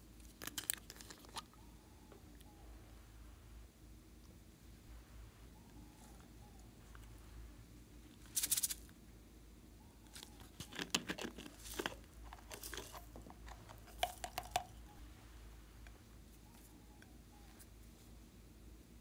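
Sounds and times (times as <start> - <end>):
plastic bottle clicking and rattling: 10.6 - 14.7.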